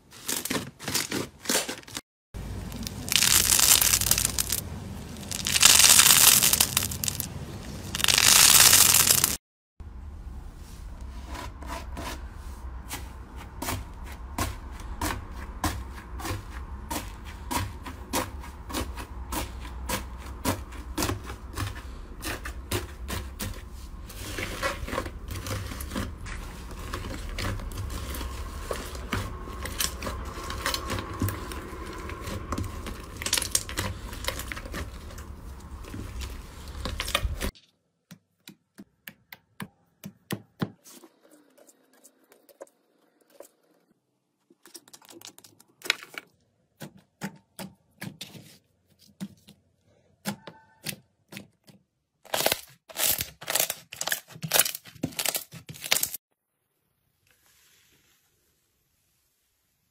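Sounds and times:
slime crackling: 2.6 - 9.4, 24.1 - 37.6
low rumble: 23.7 - 37.5.

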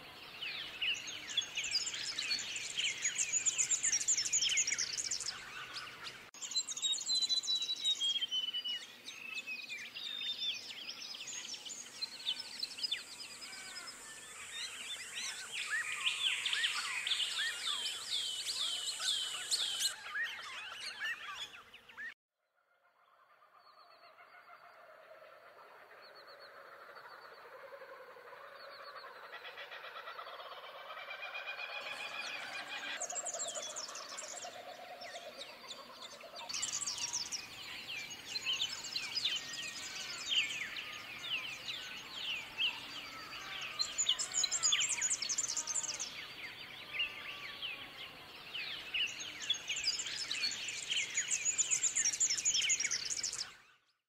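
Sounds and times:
small birds chirping and singing: 0.0 - 22.2, 25.8 - 54.0.

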